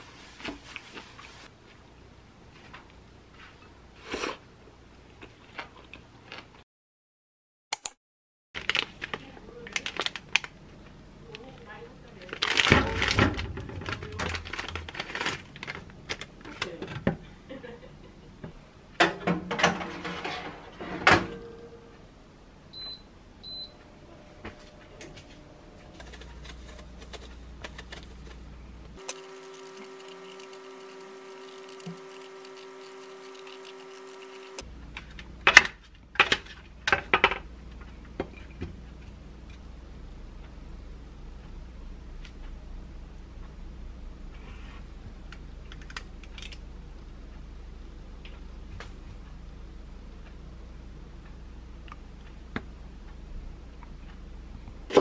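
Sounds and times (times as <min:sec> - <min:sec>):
plastic bags crinkling: 0:08.6 - 0:10.5, 0:12.2 - 0:16.4, 0:26.0 - 0:34.6
steady hum: 0:21.6 - 0:35.5.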